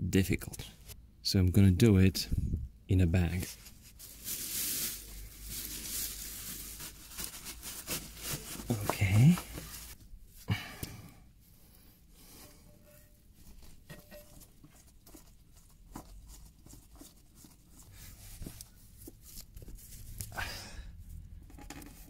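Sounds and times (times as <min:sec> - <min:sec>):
plastic bag rustling: 0:03.5 - 0:10.1.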